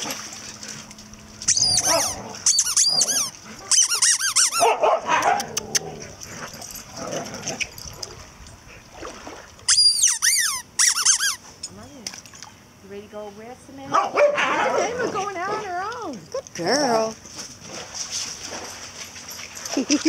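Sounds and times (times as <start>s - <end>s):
dogs yelping and whining: 1.4s - 8.0s, 9.7s - 11.4s.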